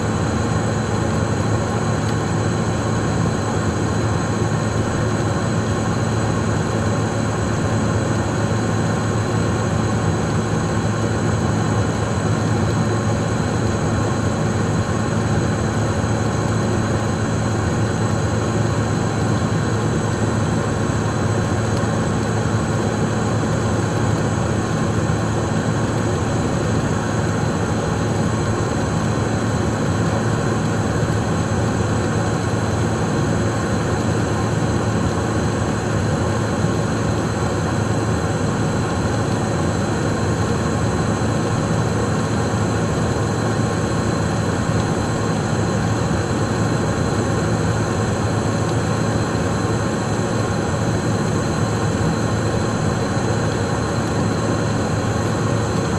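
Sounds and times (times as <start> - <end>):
jet cockpit hum and airflow: 0.0 - 55.9.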